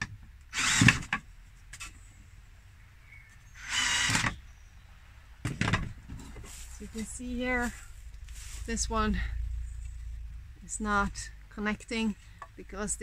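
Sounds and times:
cordless drill whirring: 0:00.5 - 0:01.1, 0:03.6 - 0:04.4.

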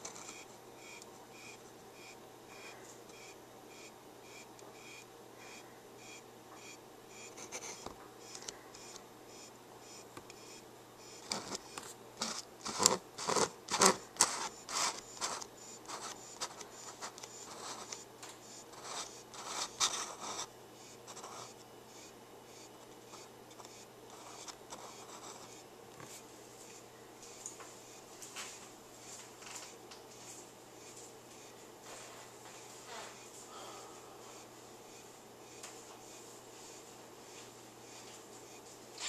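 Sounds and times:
plastic container scratches and clicks: 0:12.2 - 0:18.0.

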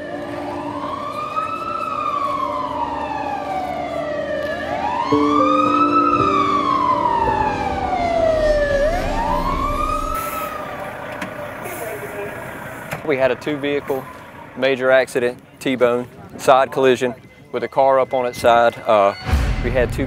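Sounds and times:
chord of steady lower tones: 0:00.0 - 0:15.2
fire engine siren wailing: 0:00.0 - 0:15.5.

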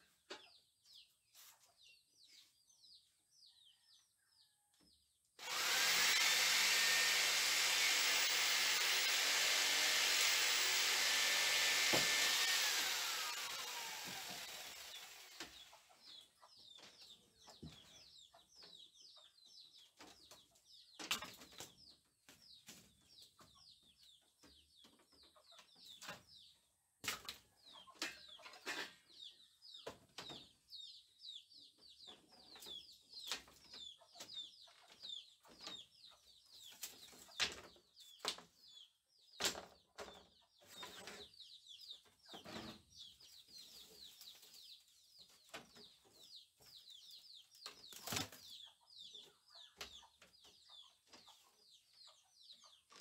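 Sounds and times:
electric drill whining: 0:05.4 - 0:15.6.

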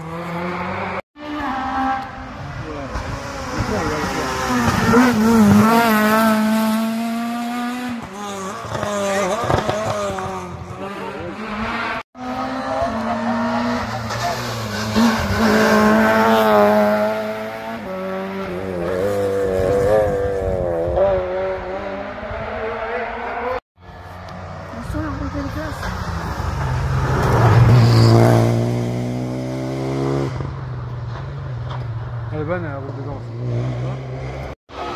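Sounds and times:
rally car engines accelerating: 0:00.0 - 0:34.9.

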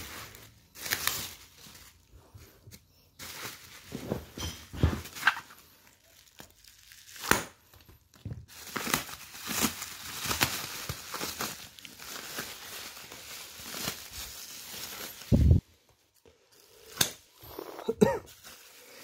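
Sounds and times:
plastic bag crinkling and tearing: 0:00.0 - 0:02.3, 0:04.8 - 0:19.0.

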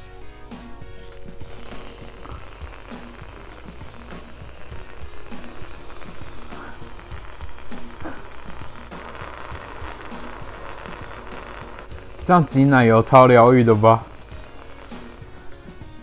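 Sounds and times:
aerosol can spraying cream: 0:01.0 - 0:16.0.

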